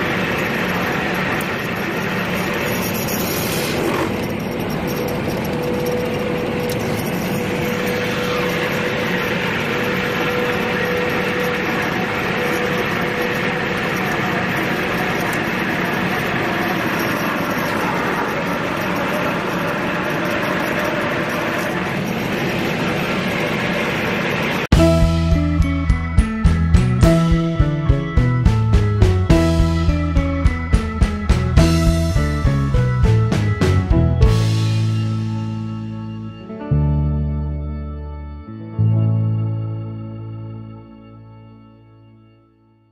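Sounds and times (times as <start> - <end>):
fuel rushing through valves: 0.0 - 26.4.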